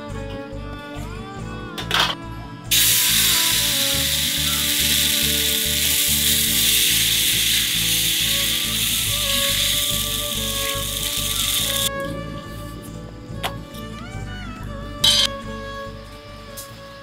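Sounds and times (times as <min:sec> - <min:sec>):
background music with beat: 0:00.0 - 0:17.0
batter sizzling on hot iron: 0:02.7 - 0:11.9.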